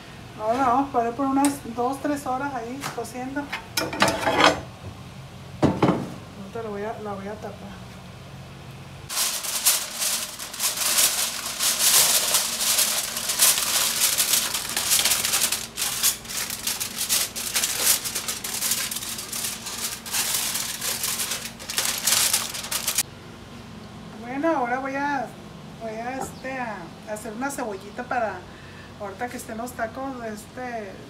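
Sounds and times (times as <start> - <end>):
aluminium foil crinkling: 9.1 - 23.0.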